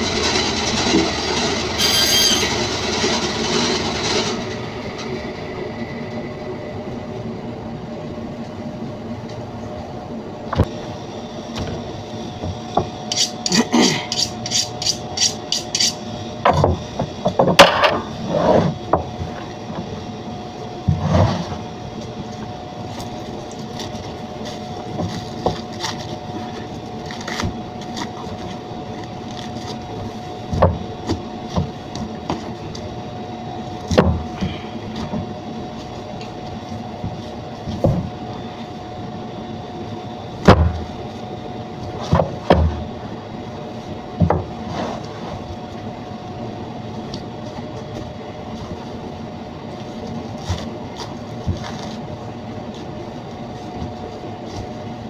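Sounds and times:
band saw running: 0.0s - 5.1s
room hum: 0.0s - 55.0s
knife cutting and scraping meat: 13.1s - 16.0s.

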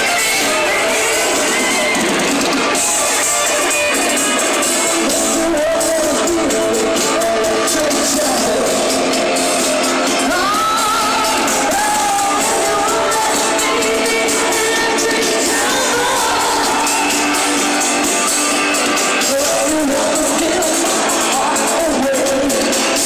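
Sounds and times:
rock band with electric guitar: 0.0s - 23.0s
woman singing: 10.1s - 17.9s.

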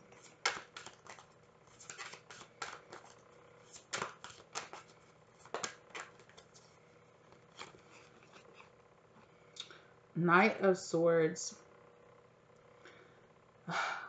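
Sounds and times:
cards being shuffled: 0.0s - 8.7s.

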